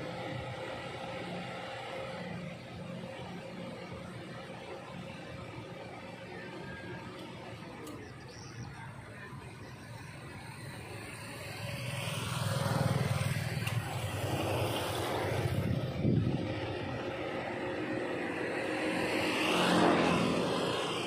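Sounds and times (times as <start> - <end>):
traffic hum: 0.0 - 21.0
vehicle passing by: 10.4 - 21.0.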